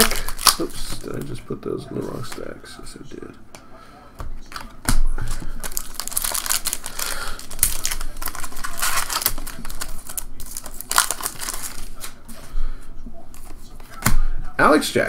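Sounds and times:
foil wrapper crinkling and tearing: 0.0s - 1.4s, 5.2s - 12.2s.

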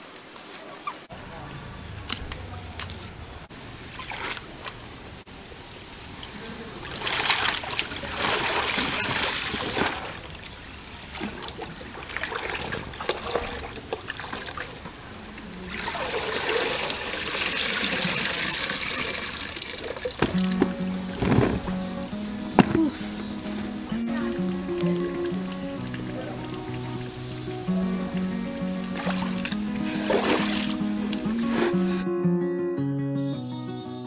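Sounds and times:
water sloshing and splashing: 3.9s - 4.8s, 6.8s - 27.4s, 28.2s - 32.0s
water trickling through basket: 15.7s - 21.8s.

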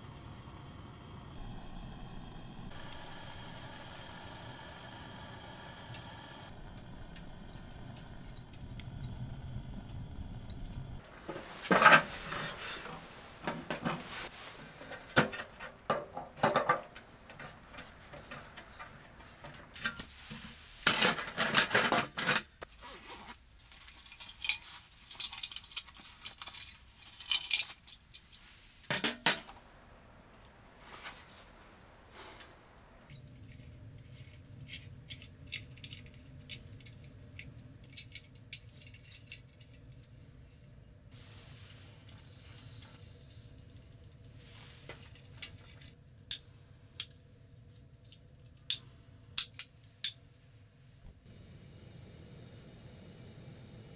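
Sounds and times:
metal clinks and scrapes: 23.6s - 28.8s, 33.1s - 40.2s.

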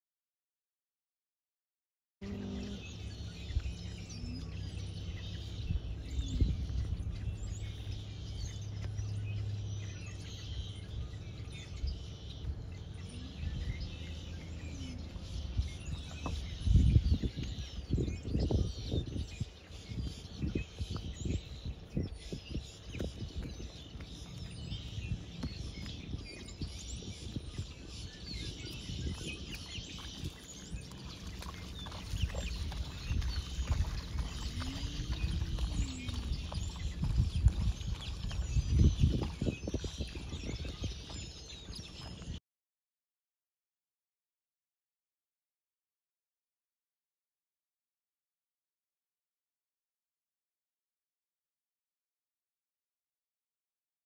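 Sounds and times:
low rumble: 2.2s - 18.6s, 29.6s - 41.2s
small birds chirping: 2.2s - 42.4s.

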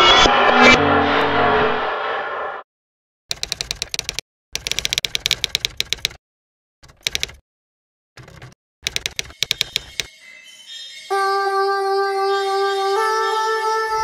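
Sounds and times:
keyboard typing clicks: 3.3s - 6.2s, 6.8s - 7.4s, 8.2s - 10.1s.

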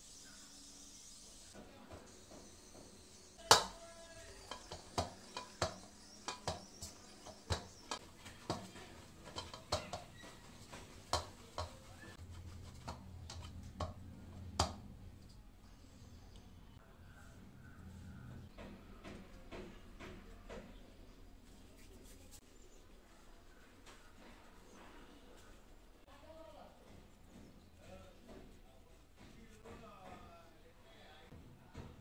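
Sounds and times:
knocks against a steel bowl: 3.5s - 10.2s.

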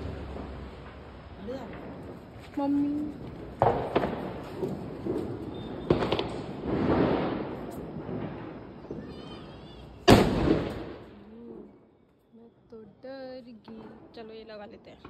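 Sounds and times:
firecracker cracks: 0.0s - 11.2s
firecracker bang: 0.0s - 11.7s.

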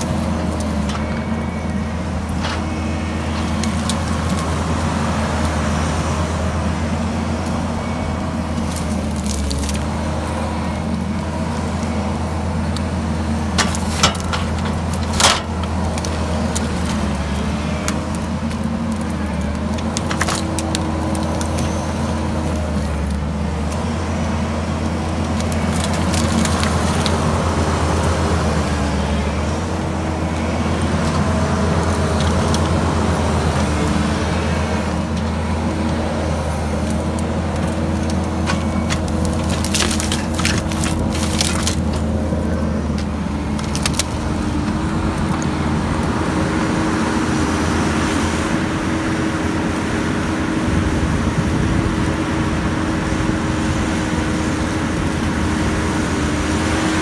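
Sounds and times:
diesel engine running under load: 0.0s - 57.0s
wood and brush snapping: 2.3s - 4.8s, 8.5s - 10.0s, 12.7s - 23.8s, 24.8s - 28.2s, 30.3s - 34.0s, 36.6s - 46.2s.

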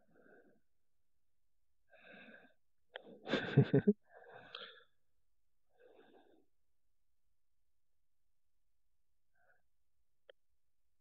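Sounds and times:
man breathing: 0.0s - 0.7s, 1.9s - 3.3s, 4.0s - 5.0s, 5.6s - 6.5s.

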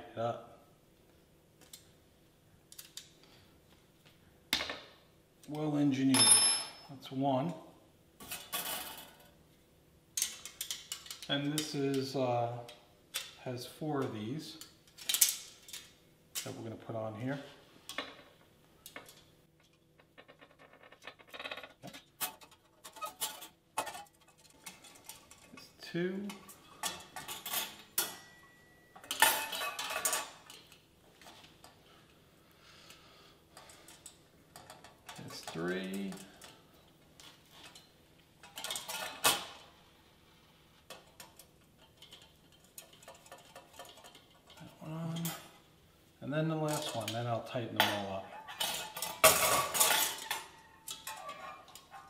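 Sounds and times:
sharp metal clank: 6.1s - 6.9s
small metal parts clicking: 10.2s - 11.7s
wire rack metal clatter: 47.8s - 52.0s.

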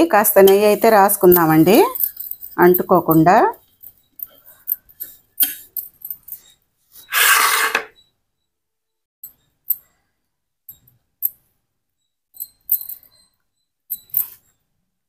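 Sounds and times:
loud rushing scraping noise: 7.1s - 7.9s.

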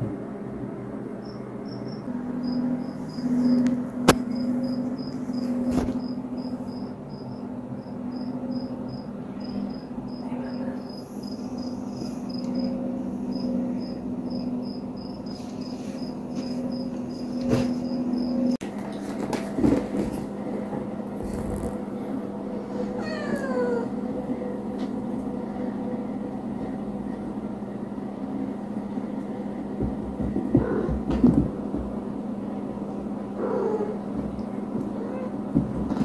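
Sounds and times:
low steady hum: 0.0s - 36.0s
cricket chirping: 1.2s - 18.6s.

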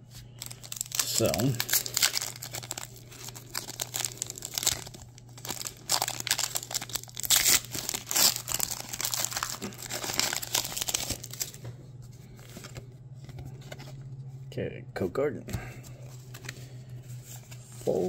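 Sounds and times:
foil wrapper crinkling and tearing: 0.4s - 11.6s.

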